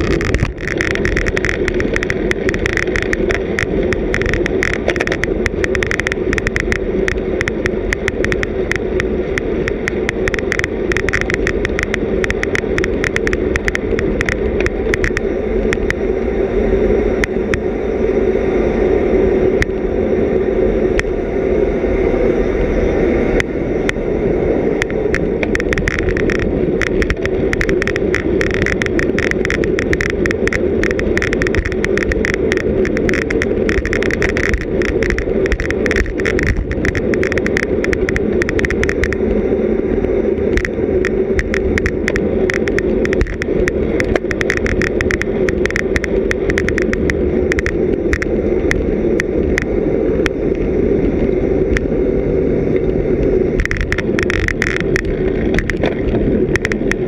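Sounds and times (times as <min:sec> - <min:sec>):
rapid bicycle clicks and rattles: 0:00.0 - 0:16.5, 0:17.1 - 0:17.7, 0:23.3 - 0:57.0
tyre-on-road noise: 0:00.0 - 0:57.0
wind rush: 0:00.0 - 0:57.0.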